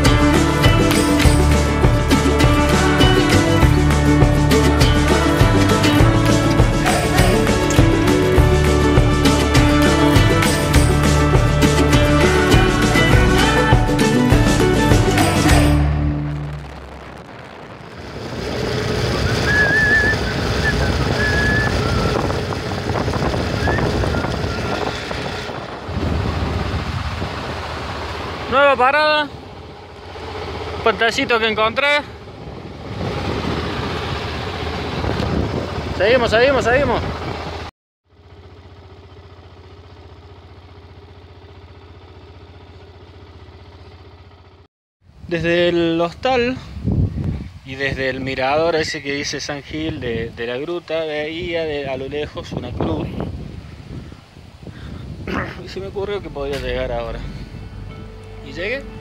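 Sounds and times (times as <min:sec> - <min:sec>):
motorcycle engine running: 0:00.0 - 0:44.7, 0:52.8 - 0:59.0
wind rushing over microphone: 0:16.0 - 0:28.6, 0:30.5 - 0:37.7, 0:45.1 - 0:58.0
person whistling: 0:19.3 - 0:22.2.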